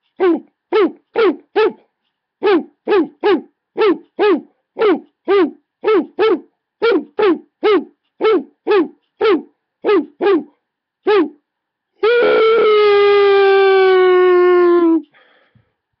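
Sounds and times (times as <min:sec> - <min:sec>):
dog barking: 0:00.2 - 0:11.4.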